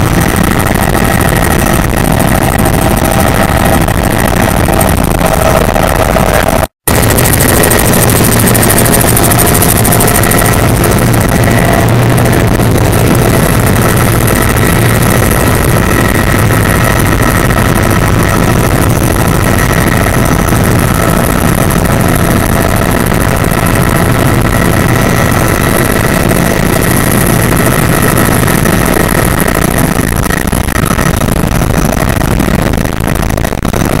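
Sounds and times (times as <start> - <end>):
helicopter engine and rotor drone: 0.0 - 34.0
high whine: 0.0 - 34.0.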